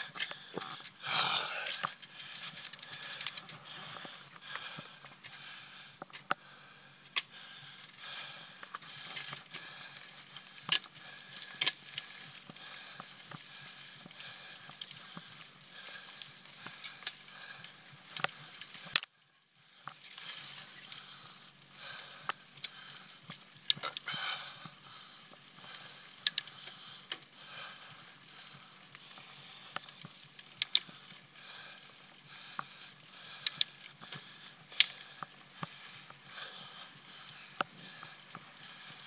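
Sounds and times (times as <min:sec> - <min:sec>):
bike tyres rolling on dirt: 0:00.0 - 0:39.0
bike rattling over bumps: 0:07.4 - 0:18.9.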